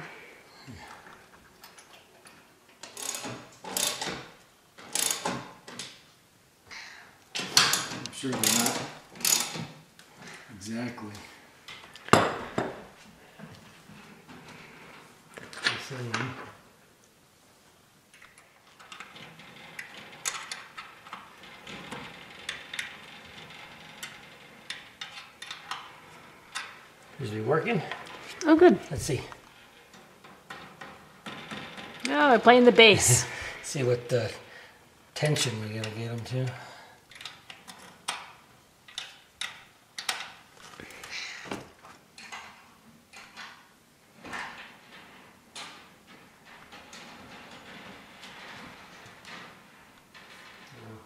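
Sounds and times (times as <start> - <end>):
small metallic clicks: 38.9 - 40.4.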